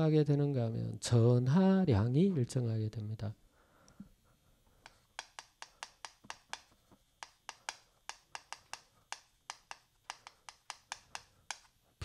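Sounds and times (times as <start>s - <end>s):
chalk tapping on chalkboard: 4.9s - 11.7s.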